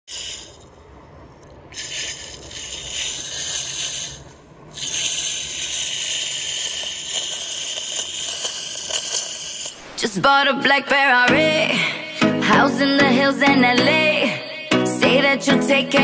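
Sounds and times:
high-pitched hiss: 0:00.0 - 0:00.8, 0:01.7 - 0:10.7.

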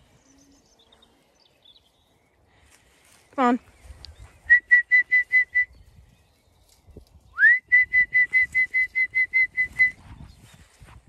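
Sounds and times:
person whistling: 0:04.5 - 0:05.8, 0:07.4 - 0:10.0.

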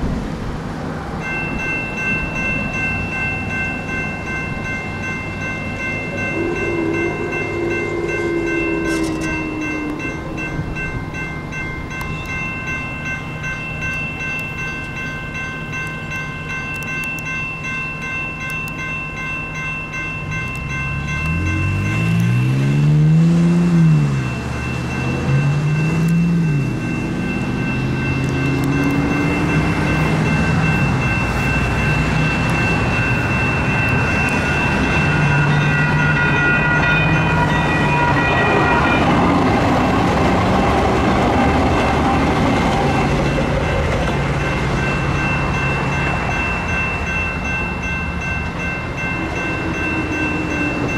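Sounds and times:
railroad crossing bell ringing: 0:01.0 - 0:50.9
vehicle engine: 0:20.3 - 0:50.9.

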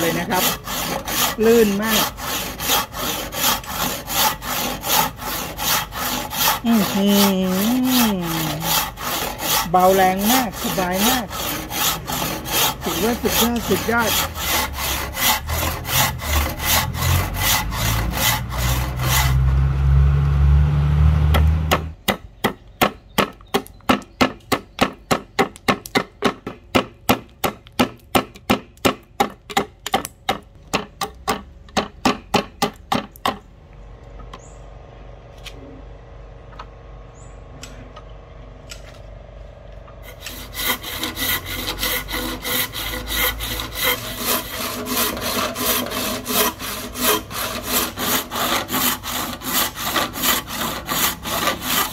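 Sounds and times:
handsaw cutting wood: 0:00.0 - 0:20.0, 0:21.0 - 0:22.0, 0:40.0 - 0:51.9
knife chopping wood: 0:21.3 - 0:33.4.

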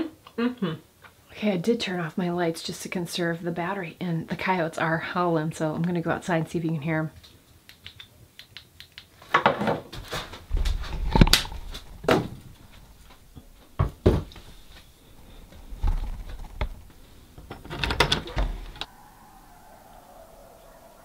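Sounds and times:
knocks and thumps in wooden cabin: 0:09.3 - 0:18.9
door opening: 0:15.8 - 0:18.9
distant coyote howling: 0:18.3 - 0:21.0.

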